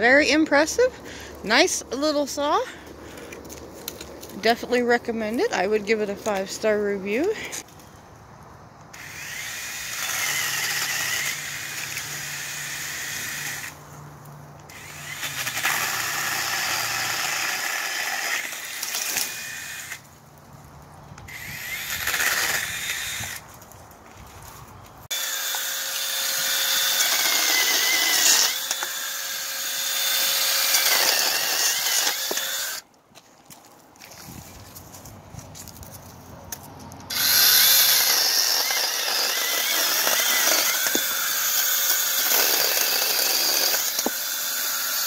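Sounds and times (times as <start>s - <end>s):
battery chainsaw cutting branches: 8.9s - 13.8s, 14.7s - 20.1s, 21.3s - 23.5s, 25.1s - 32.8s, 37.1s - 45.0s.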